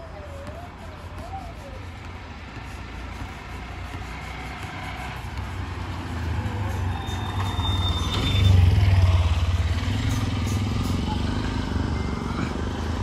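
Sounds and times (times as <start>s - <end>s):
street traffic noise: 0.0s - 13.0s
vehicle engine passing close: 4.2s - 13.0s.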